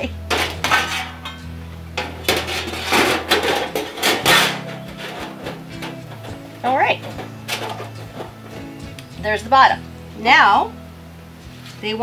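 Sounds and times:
sheet metal clanking and scraping: 0.0 - 9.0.

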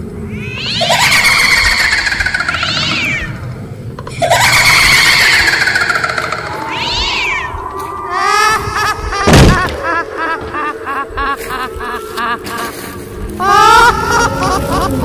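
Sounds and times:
cat-like yowling: 0.3 - 3.4, 4.3 - 9.5.

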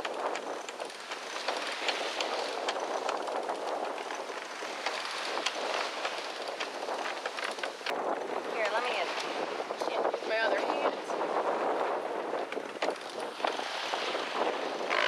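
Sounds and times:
furling line clicks and rattles: 0.0 - 9.3, 12.4 - 13.6
wind: 0.0 - 15.0.

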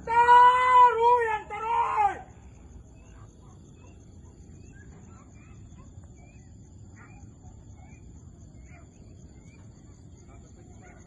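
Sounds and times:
high insect drone: 0.0 - 11.0
bird chirps: 2.5 - 11.0.

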